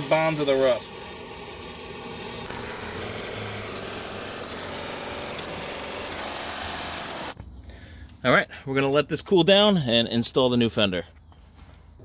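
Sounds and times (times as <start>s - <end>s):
propane torch hissing: 0.0s - 7.4s.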